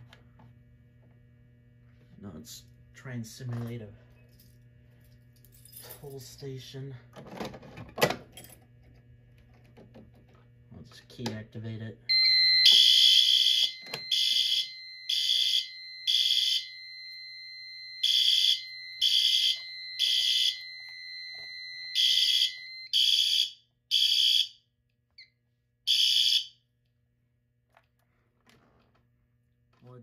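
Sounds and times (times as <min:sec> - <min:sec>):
steady high beep: 0:12.1 - 0:22.9
fire alarm horn blasts: 0:12.1 - 0:24.6, 0:25.9 - 0:26.6.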